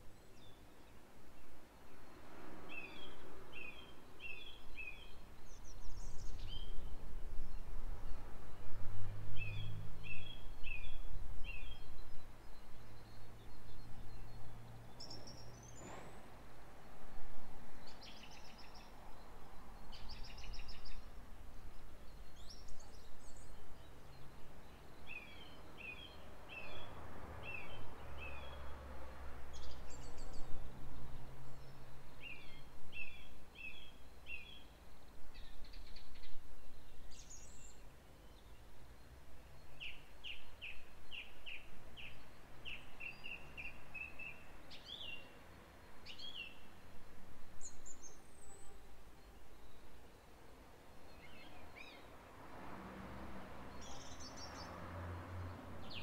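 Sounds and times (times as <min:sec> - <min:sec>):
songbirds chirping and trilling: 0:00.0 - 0:56.0.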